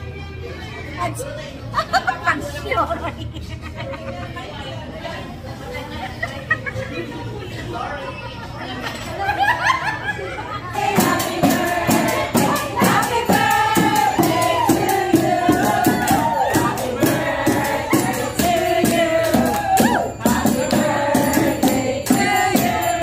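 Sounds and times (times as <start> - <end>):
voices singing: 10.6 - 23.0
steady beat: 10.8 - 23.0
jingling tambourine-like rattle: 10.9 - 23.0.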